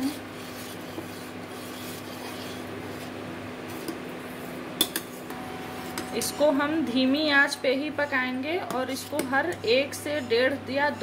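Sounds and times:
ladle scraping saucepan: 0:00.0 - 0:06.2.

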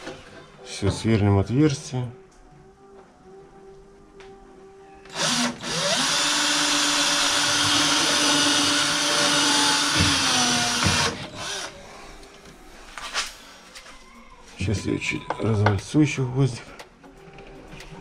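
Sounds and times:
cordless drill boring: 0:05.1 - 0:11.8.

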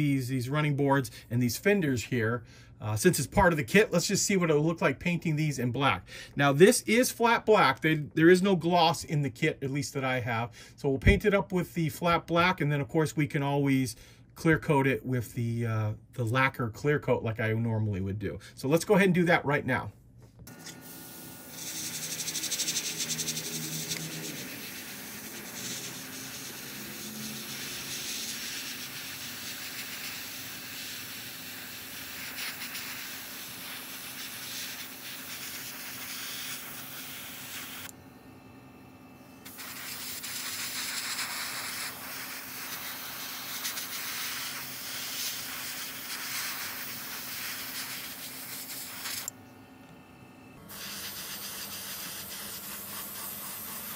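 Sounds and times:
airbrush hissing: 0:20.5 - 0:37.9, 0:39.4 - 0:49.3, 0:50.7 - 0:53.9.

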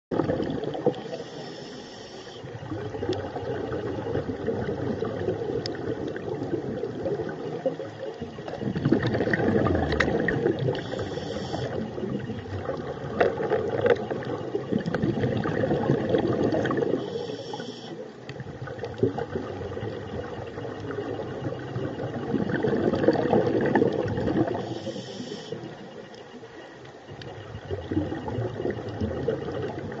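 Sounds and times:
exhaled air bubbling: 0:00.1 - 0:30.0
regulator inhalation hiss: 0:01.1 - 0:02.5, 0:10.8 - 0:11.8, 0:17.0 - 0:18.0, 0:24.6 - 0:25.7.

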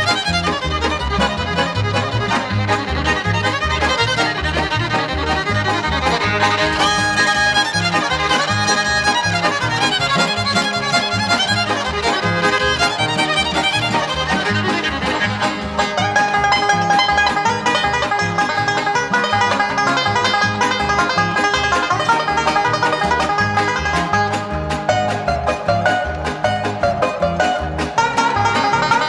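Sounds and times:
bluegrass fiddle and banjo music: 0:00.0 - 0:29.0.

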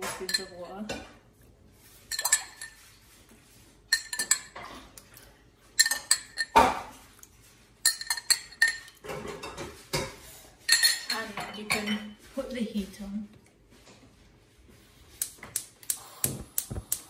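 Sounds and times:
spoon clinking on dishes: 0:00.0 - 0:00.7, 0:02.1 - 0:02.9, 0:03.9 - 0:04.7, 0:05.8 - 0:06.8, 0:07.8 - 0:12.2.

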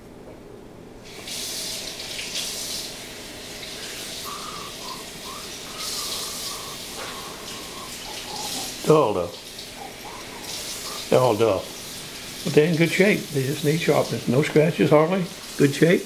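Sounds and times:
water running from tap: 0:01.0 - 0:16.0.

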